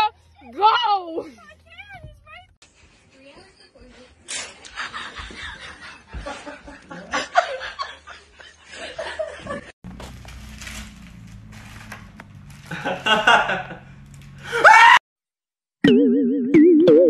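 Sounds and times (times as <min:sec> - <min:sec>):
people snickering and laughing: 0:04.3 - 0:09.8, 0:12.7 - 0:14.8.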